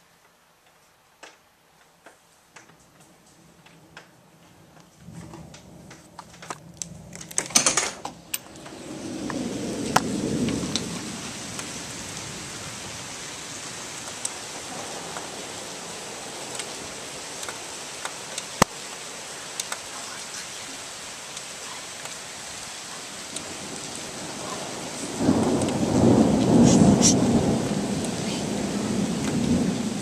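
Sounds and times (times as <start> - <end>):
handling clicks and rustle: 0.6 - 8.8
thunder rumbling: 3.4 - 30.0
heavy rain hissing: 7.8 - 30.0.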